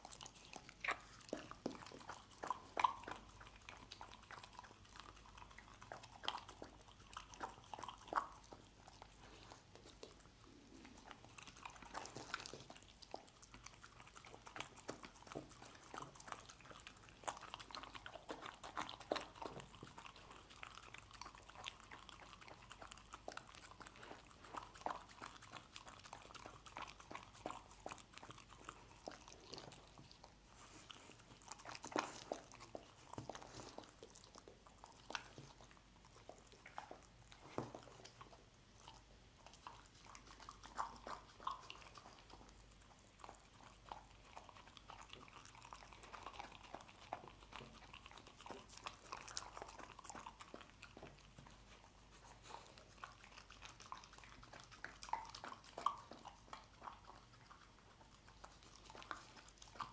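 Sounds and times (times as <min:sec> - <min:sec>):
dog chewing: 0:00.0 - 0:59.9.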